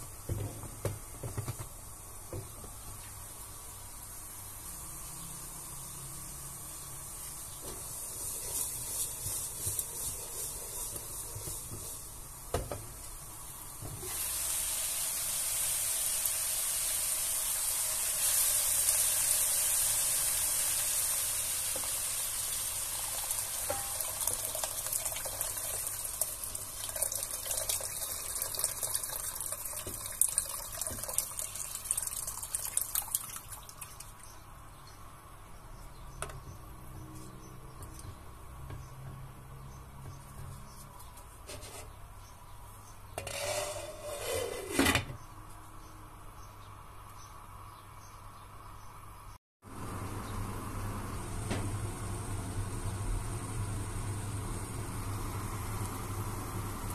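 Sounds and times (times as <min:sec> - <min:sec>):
meat and onions sizzling in a pot: 0:00.0 - 0:32.3, 0:49.7 - 0:56.9
wooden spatula stirring: 0:07.6 - 0:12.2
water poured into a hot pan: 0:14.0 - 0:34.2.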